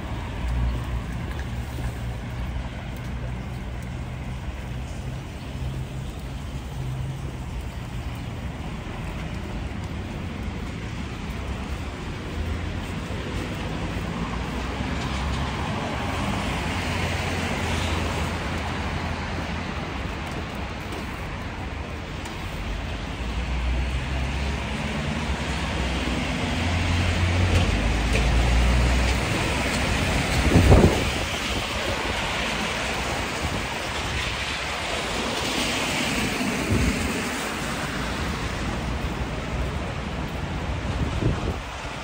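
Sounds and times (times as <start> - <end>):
rain hissing: 0.0 - 42.0
traffic on wet pavement: 0.0 - 42.0
wind rumble on microphone: 26.7 - 42.0.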